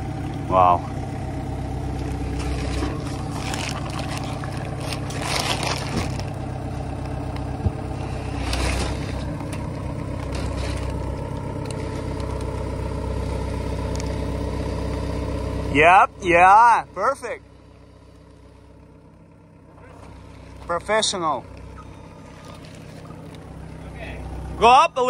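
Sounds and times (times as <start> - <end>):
forklift engine running: 0.0 - 25.0
wrapped bundle scraping: 2.2 - 6.5, 7.9 - 12.4.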